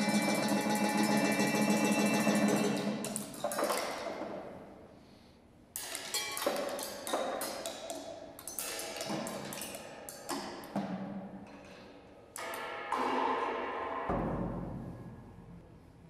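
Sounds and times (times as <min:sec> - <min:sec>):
ringing cymbals: 0:00.0 - 0:03.2.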